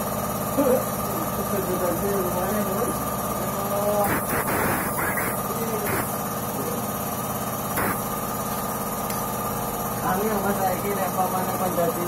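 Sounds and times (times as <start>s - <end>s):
machine motor hum: 2.8s - 8.8s.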